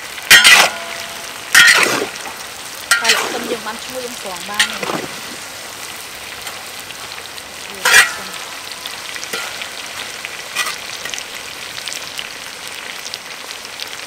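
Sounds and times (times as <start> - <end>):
food sizzling in oil: 0.0 - 14.0
metal spatula scraping wok: 0.3 - 2.3, 2.9 - 5.4, 7.7 - 11.2.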